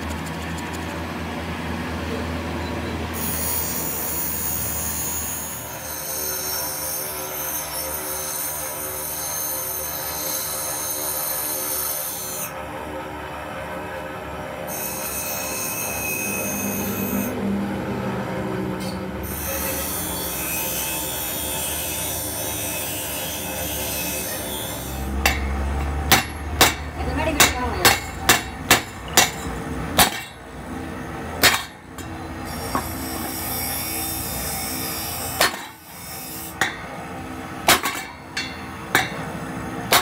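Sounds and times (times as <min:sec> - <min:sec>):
high-pitched metallic squeal: 0:02.6 - 0:12.5, 0:14.6 - 0:17.4, 0:18.8 - 0:25.9.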